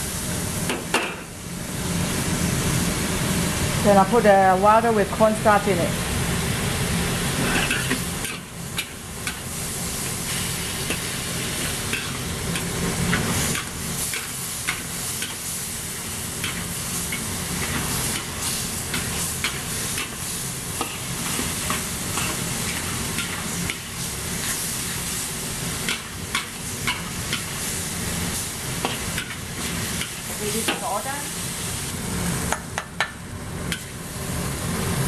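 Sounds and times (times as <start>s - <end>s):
food sizzling in a wok: 0.0s - 35.0s
spatula scraping a wok: 7.3s - 27.8s, 28.4s - 31.6s.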